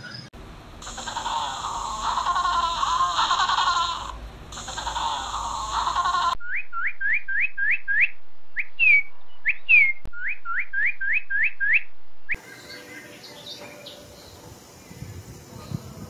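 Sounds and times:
cardinal singing whistles: 6.4s - 11.8s.

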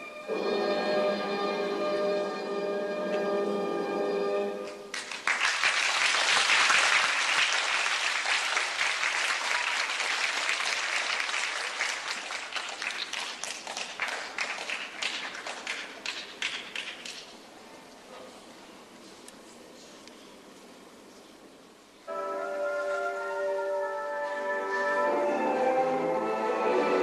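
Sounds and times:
orchestral chord: 0.0s - 4.6s, 22.1s - 27.0s
audience applause: 4.9s - 17.2s.

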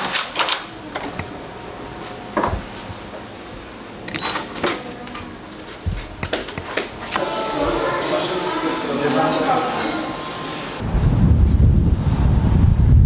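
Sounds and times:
elevator button clicks: 4.0s - 5.2s.

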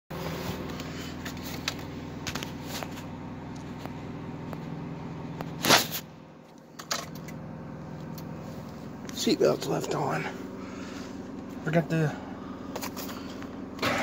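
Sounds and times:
steady low hum: 0.1s - 14.0s
rustling inside vehicle cab: 0.2s - 4.7s.

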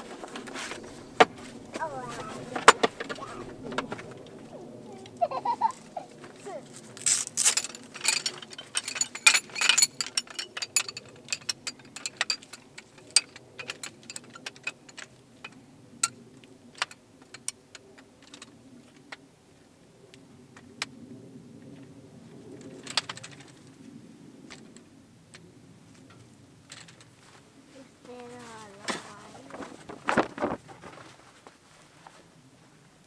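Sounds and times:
low steady hum: 0.0s - 30.7s
sharp clicks and clinks: 7.0s - 16.2s.

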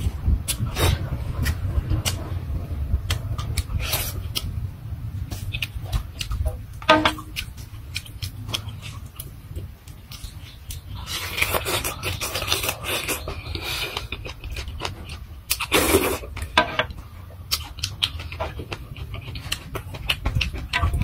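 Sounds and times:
low rumble: 0.0s - 11.2s
person chewing and smacking lips: 0.0s - 21.0s.

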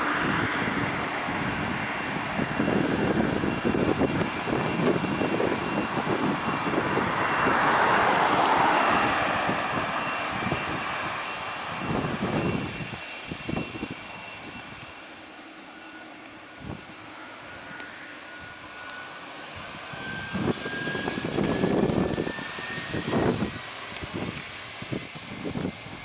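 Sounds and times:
jet engines rushing: 0.0s - 26.0s.

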